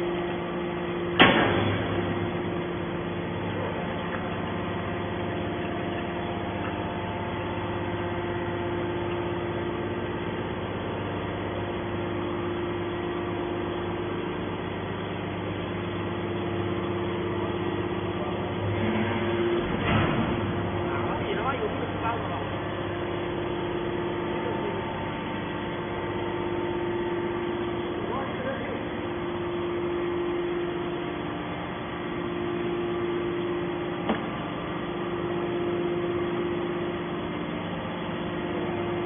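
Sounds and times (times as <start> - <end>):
hydraulic baler humming: 0.0 - 39.0
sharp bang: 1.2 - 2.0.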